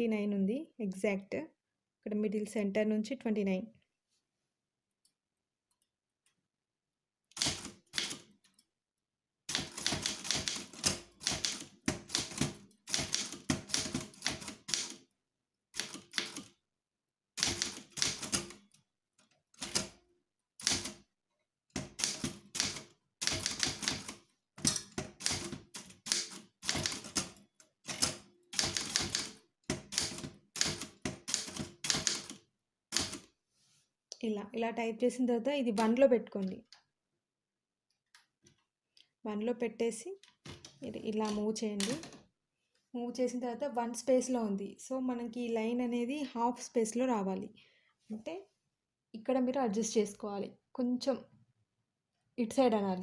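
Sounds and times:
typewriter keys striking: 0:07.4 - 0:08.2, 0:09.5 - 0:15.0, 0:15.8 - 0:16.5, 0:17.4 - 0:18.6, 0:20.6 - 0:21.0, 0:21.8 - 0:32.4, 0:33.0 - 0:33.2.

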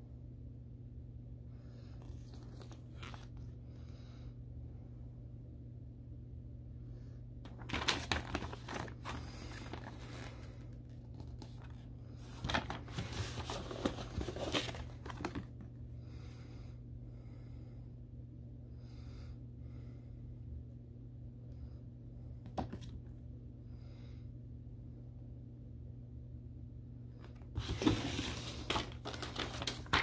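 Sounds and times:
steady low hum: 0:00.0 - 0:30.0
paper rustling: 0:02.0 - 0:03.4, 0:07.5 - 0:15.6, 0:27.5 - 0:30.0.

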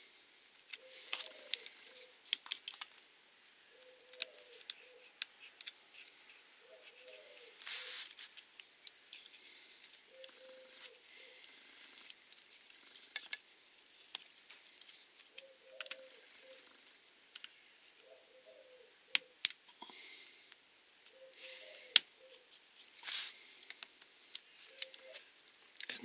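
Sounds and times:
soft rustles: 0:04.4 - 0:15.3, 0:22.4 - 0:25.3.

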